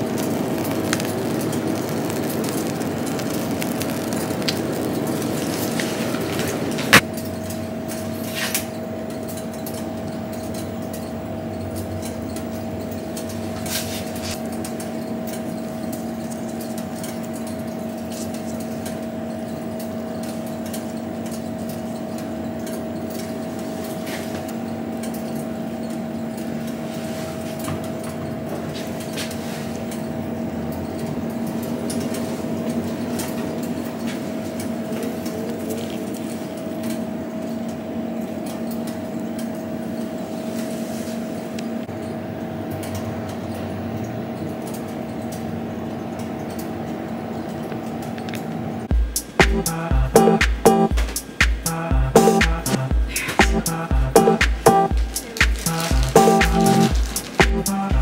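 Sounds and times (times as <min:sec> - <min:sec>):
kitchen equipment hum: 0:00.0 - 0:38.5, 0:52.8 - 0:58.0.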